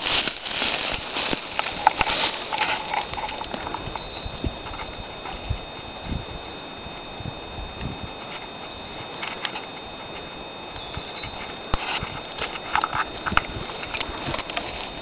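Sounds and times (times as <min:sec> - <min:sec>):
footsteps on stony ground: 0:00.0 - 0:07.2, 0:07.8 - 0:15.0
faint high chirping: 0:03.6 - 0:14.0.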